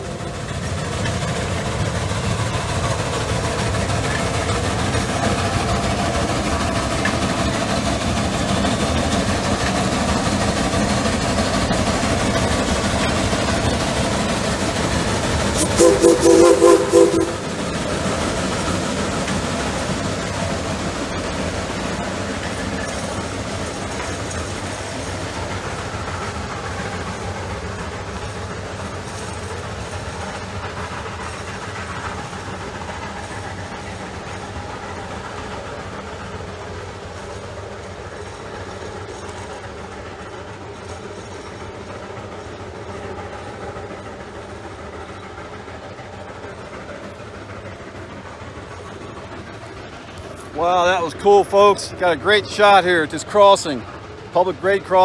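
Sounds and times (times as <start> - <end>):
steam train working uphill: 0.0 - 55.0
steam locomotive whistle: 15.6 - 17.6.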